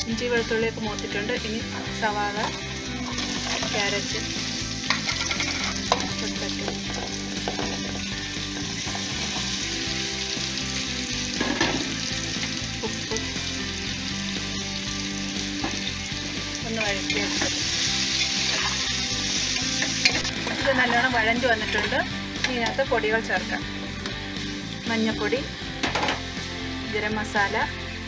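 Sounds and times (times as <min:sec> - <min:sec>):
vegetables sizzling in oil: 0:00.0 - 0:28.0
spoon scraping a pan: 0:04.8 - 0:06.1, 0:16.8 - 0:21.0.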